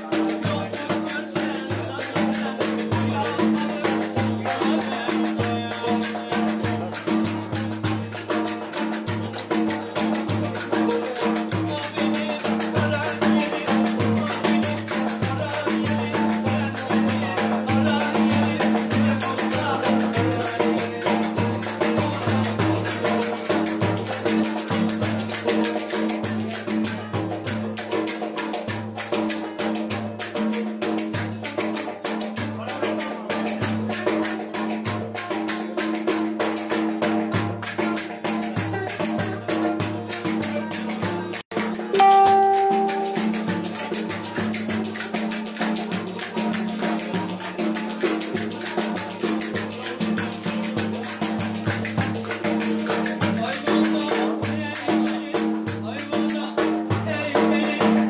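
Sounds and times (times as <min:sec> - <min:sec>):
clear held tone: 0:42.0 - 0:43.6.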